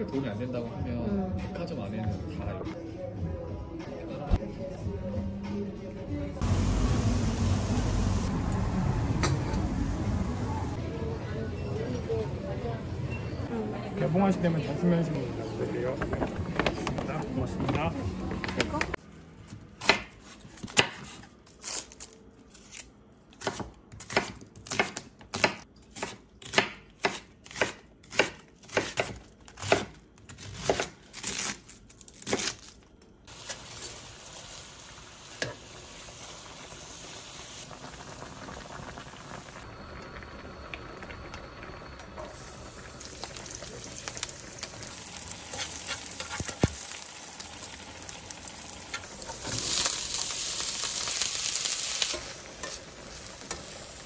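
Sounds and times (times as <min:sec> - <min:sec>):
garlic sizzling in hot oil: 0:33.3 - 0:54.0
pot of water boiling: 0:33.3 - 0:54.0.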